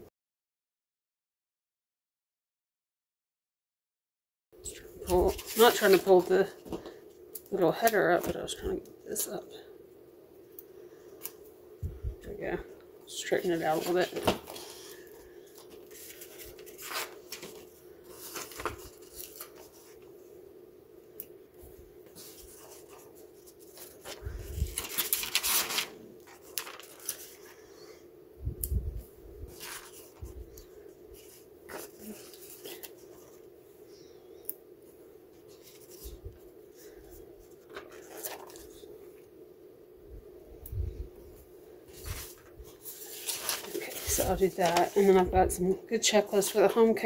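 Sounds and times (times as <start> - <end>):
low steady hum: 4.6 - 47.0
sticker sheets rustling: 4.7 - 6.9, 13.3 - 20.2, 22.1 - 27.7, 29.4 - 33.5, 35.3 - 38.9, 41.9 - 47.0.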